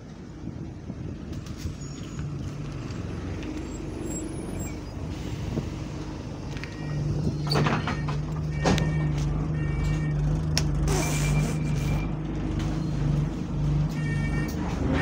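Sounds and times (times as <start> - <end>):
bus diesel engine idling: 3.5 - 15.0
short electronic beeps: 11.0 - 12.2.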